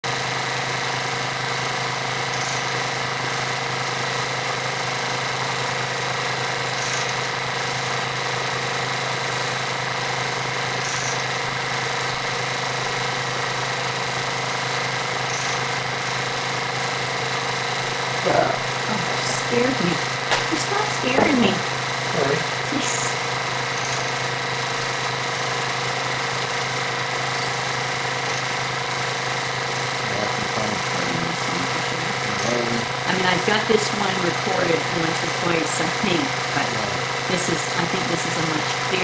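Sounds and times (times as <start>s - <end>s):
film projector whirring: 0.1s - 30.1s.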